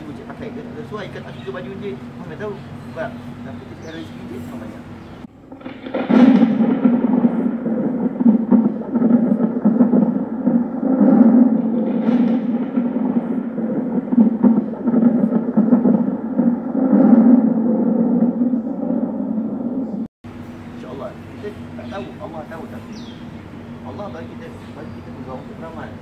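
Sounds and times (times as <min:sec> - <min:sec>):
low rumbling: 0:00.0 - 0:26.0.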